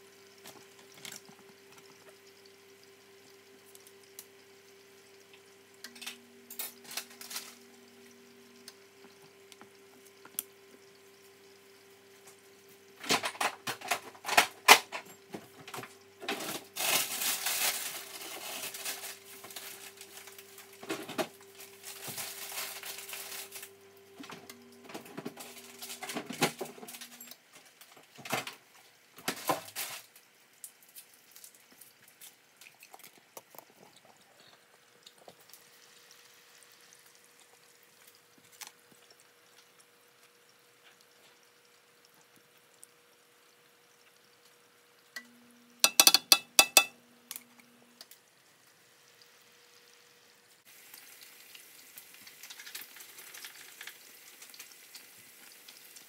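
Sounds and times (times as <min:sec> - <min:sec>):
utensils clicking and knocking: 0:45.2 - 0:47.0.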